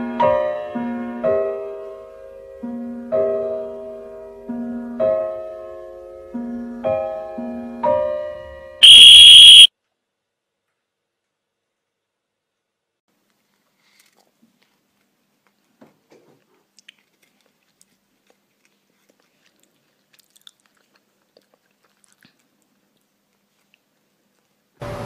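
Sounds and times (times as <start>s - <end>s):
cat crunching a treat: 16.7s - 24.6s.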